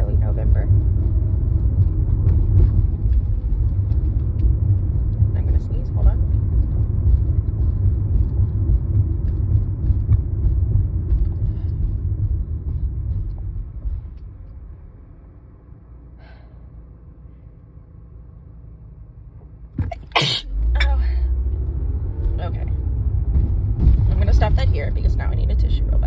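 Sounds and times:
road rumble inside car: 0.0s - 26.0s
steady low hum: 0.0s - 26.0s.

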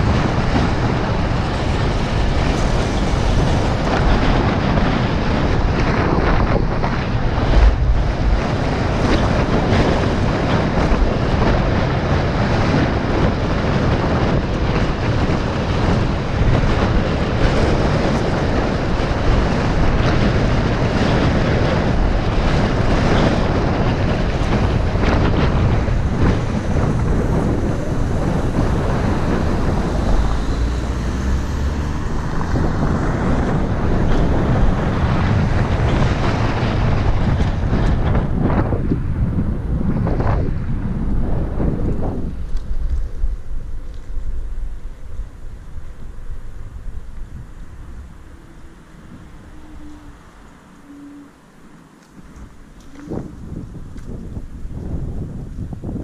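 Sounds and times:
road noise: 0.0s - 56.0s
wind buffeting microphone: 0.0s - 56.0s.

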